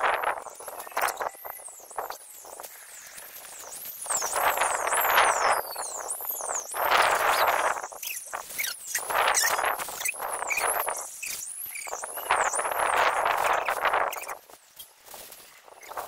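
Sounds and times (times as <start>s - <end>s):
gusty wind on microphone: 0.0s - 2.6s, 4.1s - 14.4s
kite flapping: 6.8s - 16.0s.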